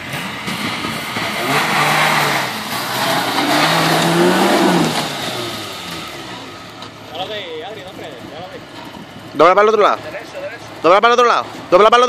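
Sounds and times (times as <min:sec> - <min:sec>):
rushing noise: 0:00.0 - 0:06.8
engine revving under load: 0:00.0 - 0:07.4.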